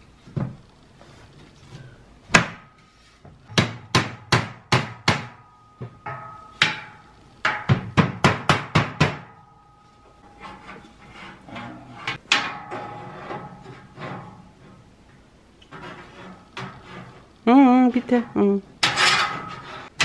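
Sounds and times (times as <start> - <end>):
mallet knocking steel beams: 3.5 - 9.7
steel frame ringing: 5.2 - 7.8, 9.0 - 14.4.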